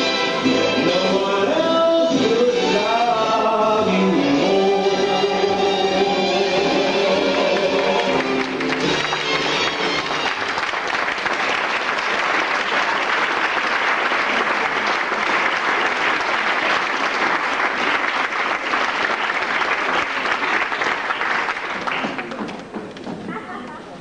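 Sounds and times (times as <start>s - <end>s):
audience applauding: 7.0s - 23.2s.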